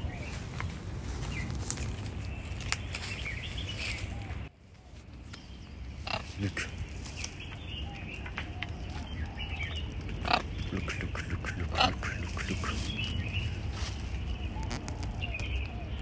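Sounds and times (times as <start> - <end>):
steady low rumble: 0.0 - 16.0
macaws squawking: 6.0 - 16.0.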